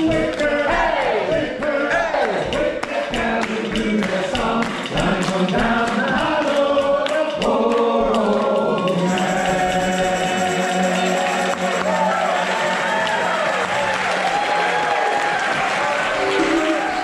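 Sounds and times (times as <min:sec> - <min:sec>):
group singing sea chanty: 0:00.0 - 0:13.4
hand-clapping in time: 0:00.0 - 0:17.0.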